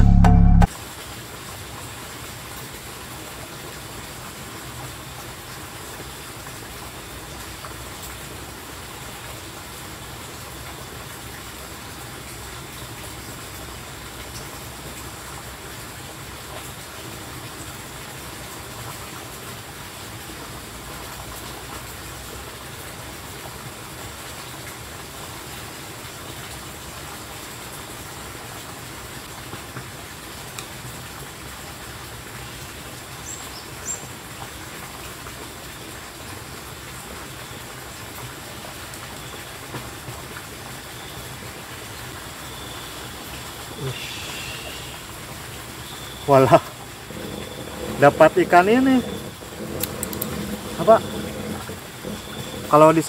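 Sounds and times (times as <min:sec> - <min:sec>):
running water rushing: 0:00.7 - 0:53.0
faint ticks: 0:47.1 - 0:52.8.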